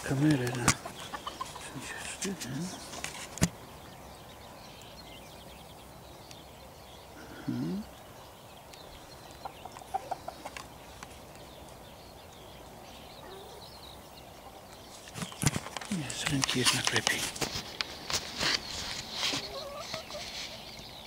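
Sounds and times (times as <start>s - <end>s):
hens clucking: 0.0s - 3.3s, 9.1s - 11.4s, 14.4s - 20.8s
faint outdoor background: 0.0s - 21.0s.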